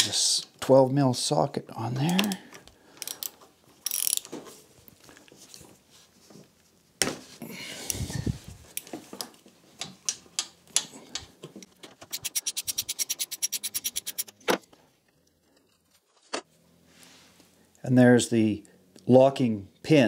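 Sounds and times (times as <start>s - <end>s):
hand ratchet clicking: 3.0s - 4.3s, 12.1s - 14.3s.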